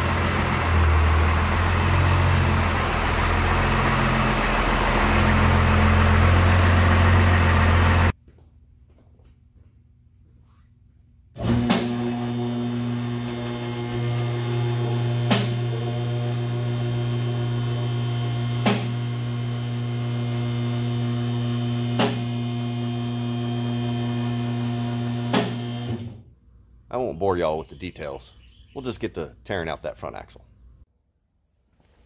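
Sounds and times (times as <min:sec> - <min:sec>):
hydraulic pump humming: 0:00.0 - 0:08.1, 0:11.4 - 0:26.2.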